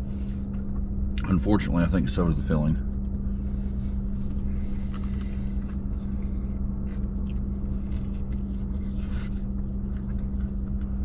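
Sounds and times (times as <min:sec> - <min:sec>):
faint clicks and rustles: 0:04.1 - 0:11.0.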